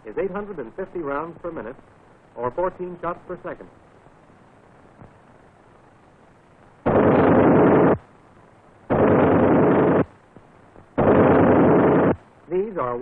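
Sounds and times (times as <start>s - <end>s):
machine gun firing in bursts: 6.9s - 8.0s, 8.9s - 10.1s, 11.0s - 12.2s.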